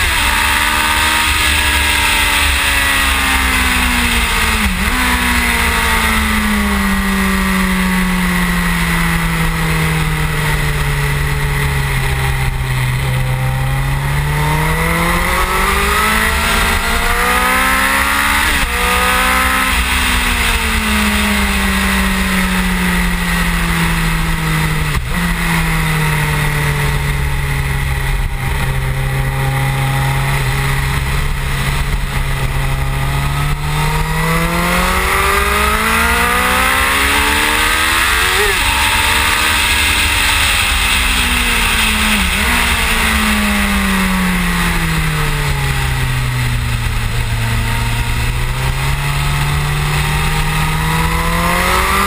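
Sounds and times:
motorcycle engine revving: 0.0s - 52.0s
wind rumble: 0.0s - 52.0s.

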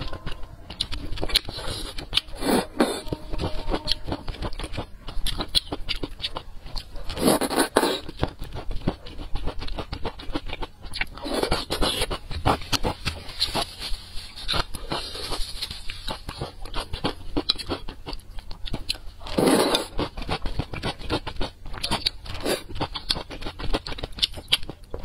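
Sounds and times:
chewing with wet mouth clicks: 0.0s - 13.7s, 14.4s - 25.0s
loud noodle slurps: 7.2s - 8.1s, 19.4s - 19.9s.

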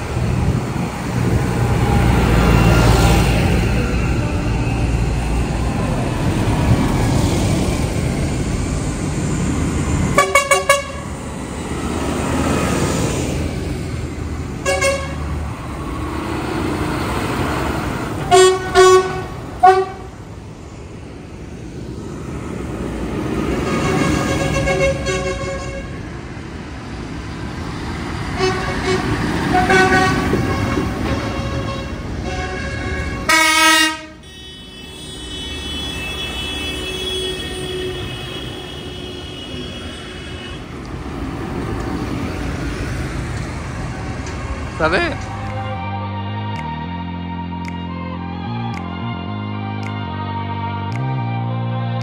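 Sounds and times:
tractor engines rumbling: 0.0s - 52.0s
horns tooting: 14.6s - 15.3s, 18.2s - 20.1s, 23.5s - 26.0s, 28.3s - 40.8s.

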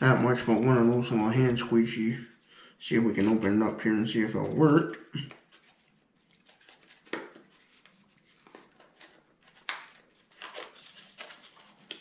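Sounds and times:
packaging rustles and clicks: 5.3s - 12.0s.

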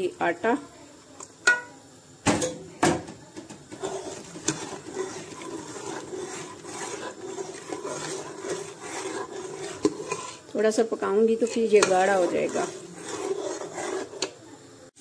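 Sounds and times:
spoon clinking against pot: 1.5s - 1.7s
metal spoon scraping metal pot: 3.6s - 14.4s.

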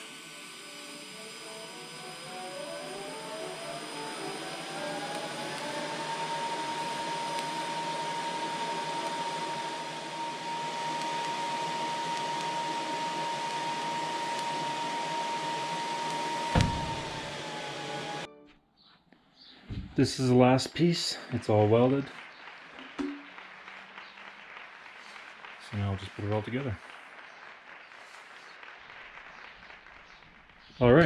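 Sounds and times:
welding arc hiss and whine: 0.0s - 18.3s
sharp thump: 16.5s - 17.1s.

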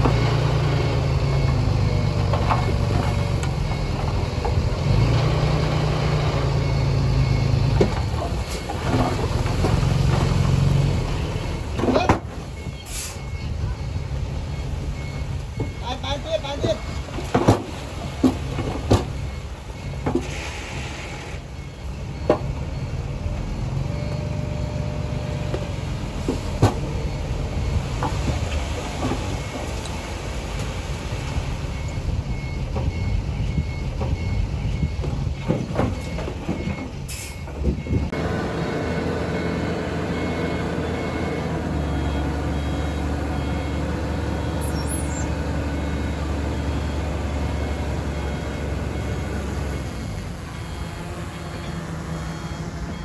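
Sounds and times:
bulldozer diesel engine: 0.0s - 53.0s.

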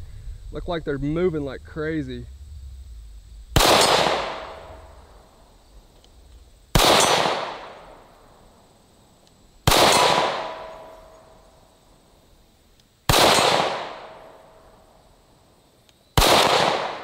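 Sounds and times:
pistol shots echoing: 3.6s - 4.6s, 6.8s - 7.8s, 9.7s - 10.9s, 13.1s - 14.2s, 16.2s - 17.0s.

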